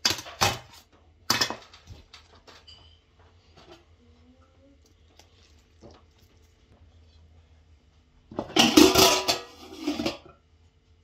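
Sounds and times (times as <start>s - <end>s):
metal spoon scraping metal tray: 8.6s - 10.2s.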